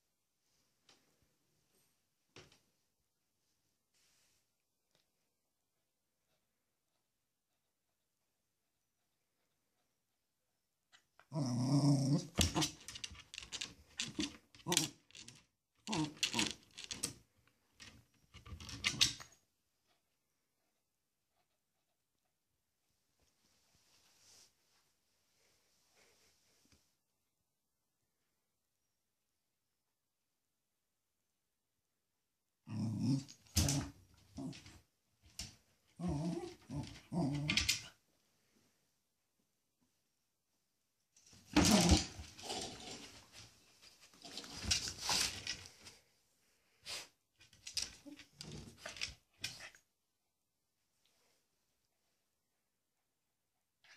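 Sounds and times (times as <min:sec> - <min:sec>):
dog growling: 0:11.3 - 0:12.8, 0:32.6 - 0:34.8, 0:36.0 - 0:37.8.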